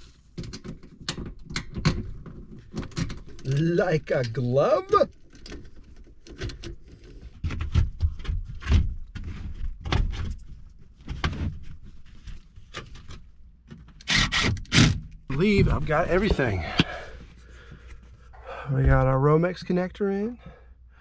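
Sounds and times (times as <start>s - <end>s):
cordless drill driving screws: 14.1s - 15.0s.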